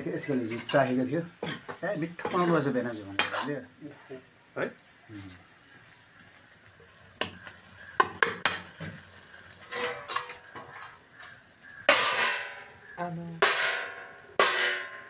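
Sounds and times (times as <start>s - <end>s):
faint sizzling: 0.0s - 15.0s
utensil clinking in wok: 9.7s - 12.6s
metal lid clanging on wok: 9.7s - 12.7s, 13.4s - 15.0s.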